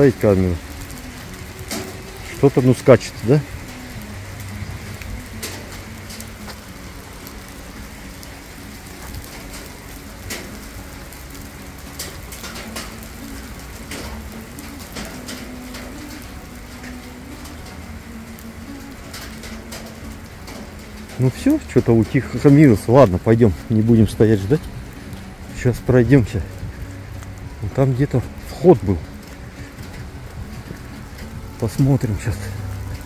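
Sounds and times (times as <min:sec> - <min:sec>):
hailstones ticking on surfaces: 0:00.0 - 0:33.0
rain hissing: 0:00.0 - 0:33.0.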